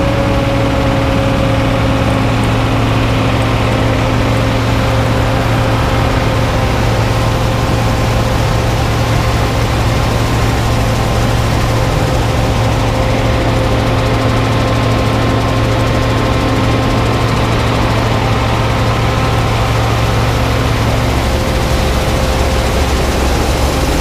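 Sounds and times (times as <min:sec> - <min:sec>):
combine harvester droning: 0:00.0 - 0:24.0.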